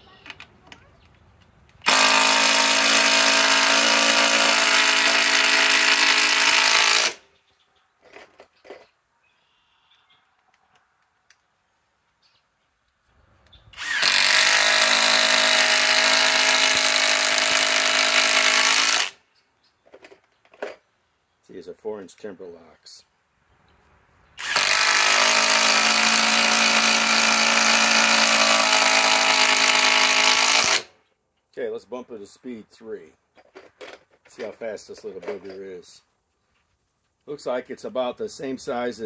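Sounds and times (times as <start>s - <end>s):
impact driver driving screws into wood: 1.8s - 7.2s, 13.8s - 19.2s, 24.4s - 30.9s.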